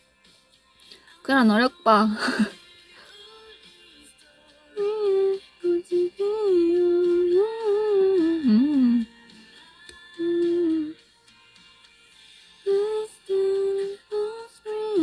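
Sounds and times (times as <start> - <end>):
woman humming: 4.8 - 9.2, 10.0 - 11.0, 12.7 - 15.0.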